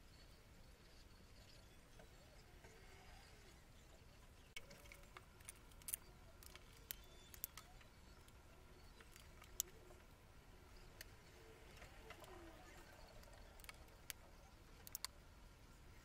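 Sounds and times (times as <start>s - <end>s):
plastic cds clicking: 4.6s - 10.1s, 10.8s - 15.2s.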